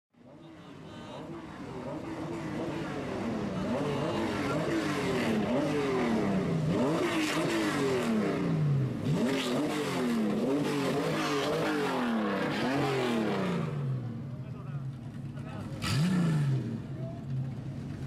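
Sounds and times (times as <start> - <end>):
car engine revving: 0.2 - 18.0.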